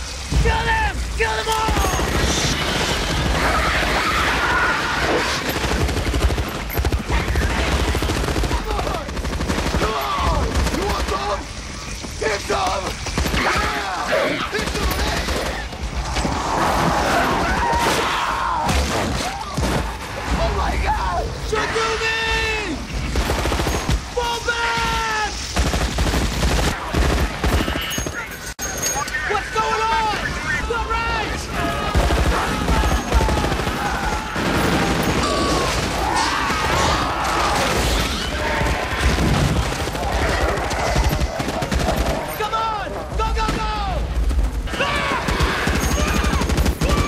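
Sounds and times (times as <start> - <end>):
rapid automatic gunfire: 1.6 - 16.1, 22.8 - 24.2, 25.3 - 28.4, 31.4 - 42.6, 43.4 - 47.0.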